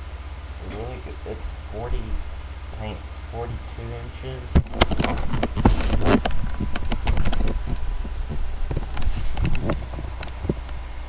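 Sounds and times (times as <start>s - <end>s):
steady low hum: 0.0s - 11.0s
longboard knocks and scrapes: 4.8s - 10.6s.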